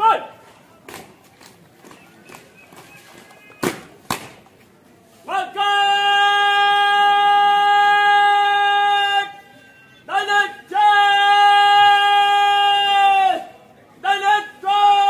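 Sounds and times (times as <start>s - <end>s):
soldier shouting parade command: 0.0s - 0.5s, 5.2s - 9.4s, 10.0s - 15.0s.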